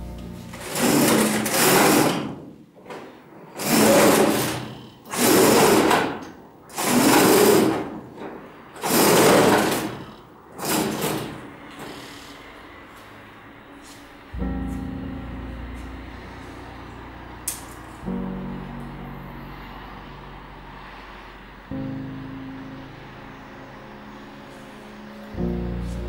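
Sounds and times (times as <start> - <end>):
roller shutter rattling: 0.5 - 12.3.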